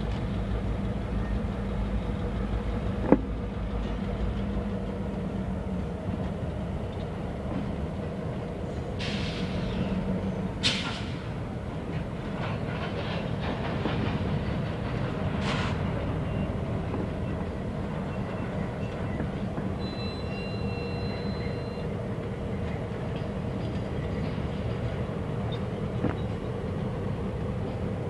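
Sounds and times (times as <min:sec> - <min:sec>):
diesel engine rumble: 0:00.0 - 0:28.0
faint high squeal: 0:19.8 - 0:21.9.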